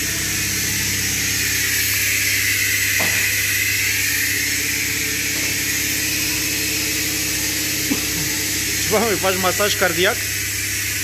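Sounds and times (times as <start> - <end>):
mechanical hum: 0.0 - 11.0.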